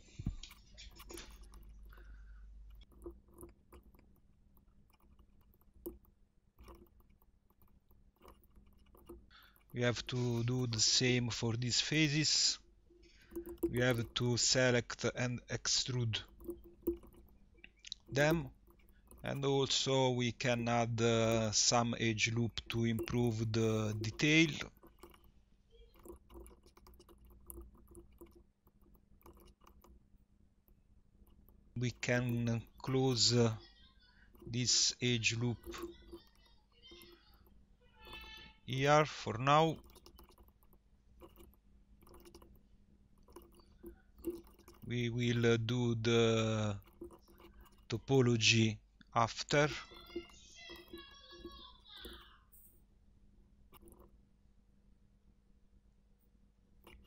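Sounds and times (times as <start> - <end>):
computer mouse clicks: 0.0 - 12.3, 13.0 - 14.8, 16.1 - 19.7, 22.5 - 30.0, 34.3 - 42.6, 43.2 - 45.4, 46.2 - 48.0, 49.6 - 52.7, 53.7 - 54.1, 56.8 - 57.0
low electrical hum: 0.0 - 57.0.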